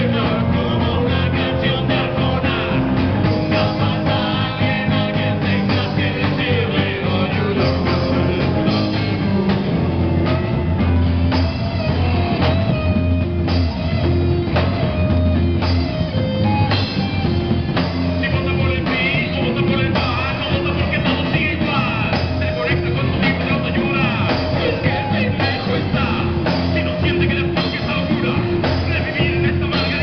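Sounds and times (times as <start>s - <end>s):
person singing: 0.0s - 10.4s, 17.7s - 30.0s
live rock band playing: 0.0s - 30.0s.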